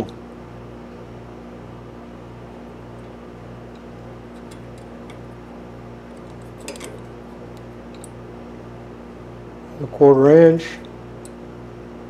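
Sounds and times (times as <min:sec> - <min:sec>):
metal tools clattering: 0:06.3 - 0:07.1.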